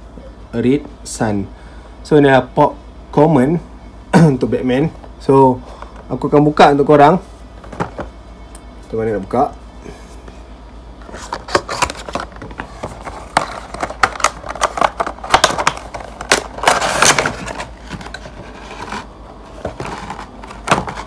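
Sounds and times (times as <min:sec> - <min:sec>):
cardboard and plastic crinkling: 0:11.0 - 0:21.0.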